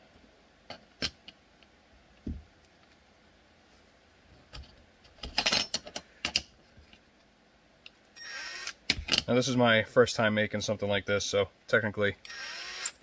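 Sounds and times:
soft bump on cutting mat: 2.2 - 2.5.

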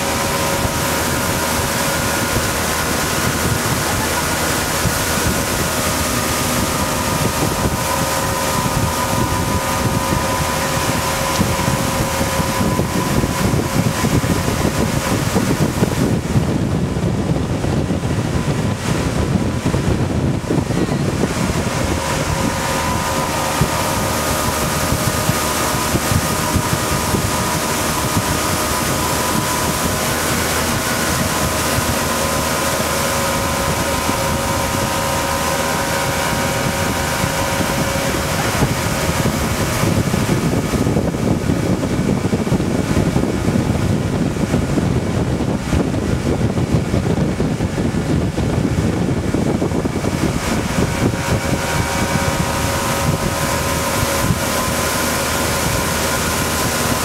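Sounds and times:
motorboat engine running: 0.0 - 57.0
wind buffeting the microphone: 0.0 - 57.0.

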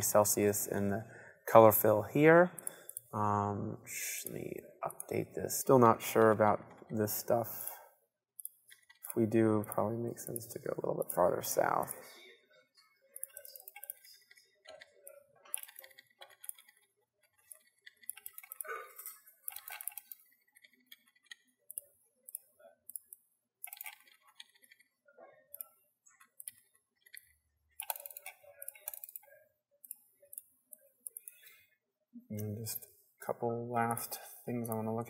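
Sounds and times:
mouse and keyboard clicking: 13.2 - 18.7, 19.5 - 24.8, 25.5 - 31.5.

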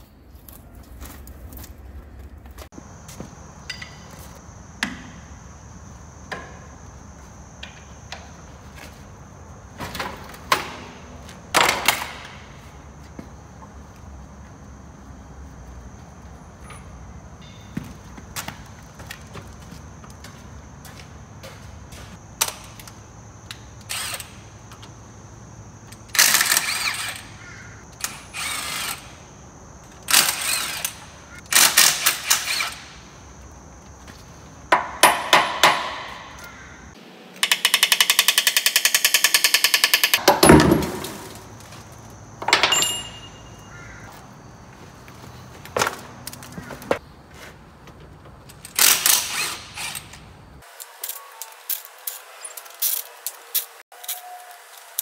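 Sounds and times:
sharp metal knocks: 34.7 - 36.5, 37.4 - 41.4, 42.4 - 43.7.

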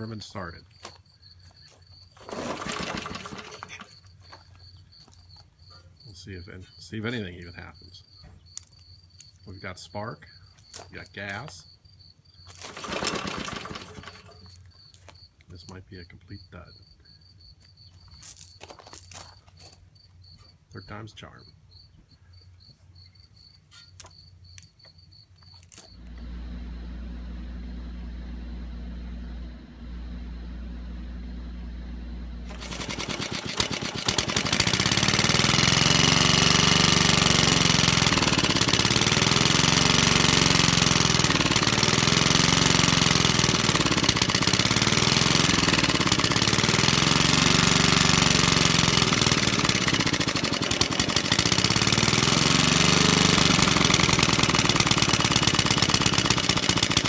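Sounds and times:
single-cylinder engine running: 2.2 - 4.0, 12.6 - 14.5, 26.0 - 57.0
low steady hum: 26.0 - 32.5.

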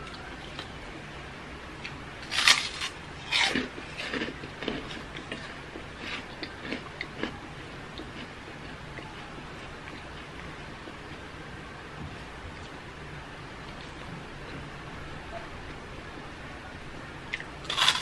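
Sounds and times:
electric fan humming: 0.0 - 18.0
crunching crisp cracker: 2.2 - 8.8, 17.3 - 18.0.

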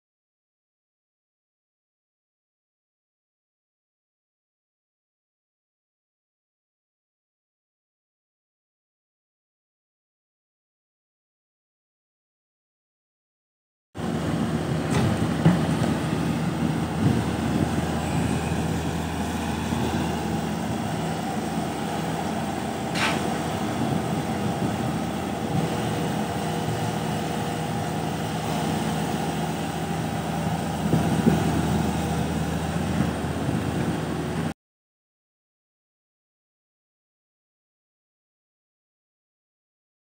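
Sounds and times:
excavator diesel engine running: 14.0 - 34.5.

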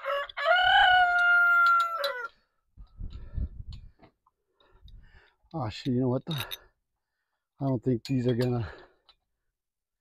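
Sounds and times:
rooster crowing: 0.0 - 2.4.

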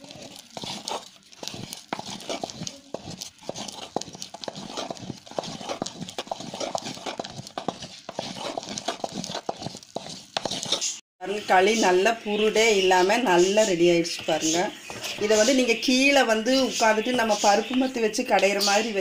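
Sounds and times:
stick knocking and scraping clay pot: 0.0 - 11.0.

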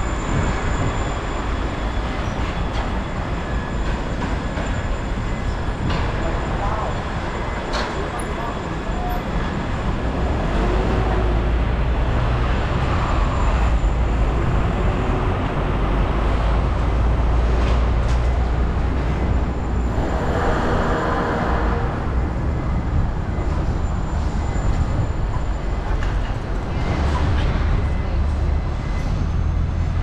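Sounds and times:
low rumble of traffic: 0.0 - 30.0
vehicle passing with whine: 18.3 - 25.2.

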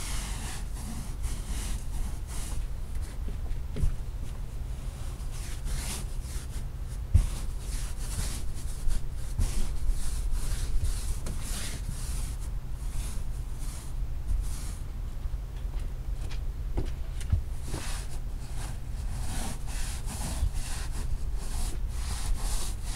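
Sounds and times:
brush scrubbing wet rug: 17.6 - 22.9.

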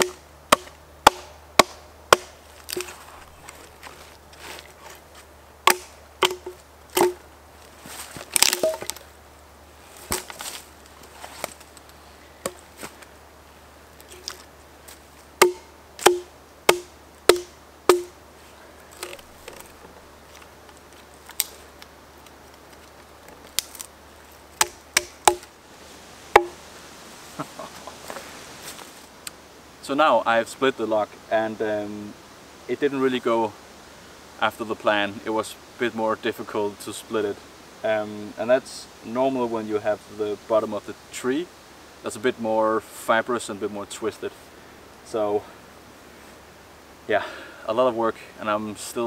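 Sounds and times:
axe chopping log: 0.0 - 3.3, 5.7 - 7.2, 8.4 - 9.0, 10.0 - 10.5, 15.4 - 18.2, 24.6 - 25.5, 26.3 - 26.6.

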